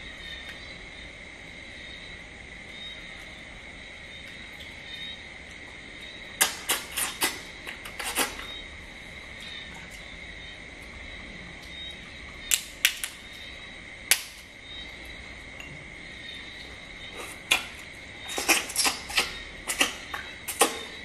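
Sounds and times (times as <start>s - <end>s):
crab shell cracking: 12.5s - 13.2s.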